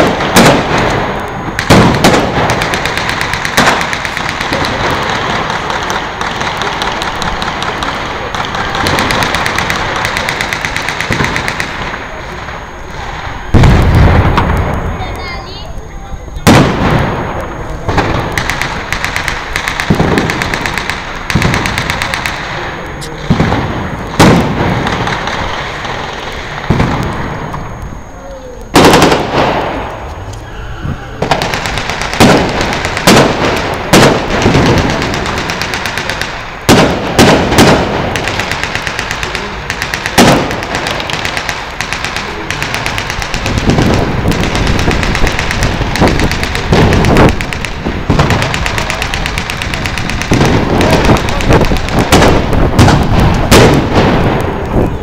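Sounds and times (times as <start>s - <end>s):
machine-gun fire bursts: 0.0s - 11.9s, 17.9s - 22.6s, 31.2s - 54.4s
rifle shots: 0.0s - 12.0s, 16.5s - 27.2s, 28.8s - 30.0s, 31.2s - 54.6s
heavy bang with long tail: 13.5s - 15.1s.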